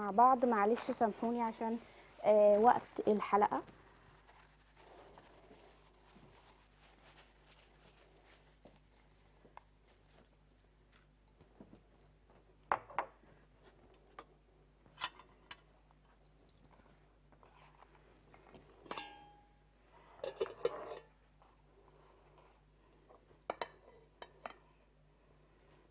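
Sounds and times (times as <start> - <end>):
faint steady hum: 0.0 - 25.9
metal pot lid clinking: 18.9 - 19.4
spoon and dishes clinking: 18.9 - 19.4, 20.2 - 21.1.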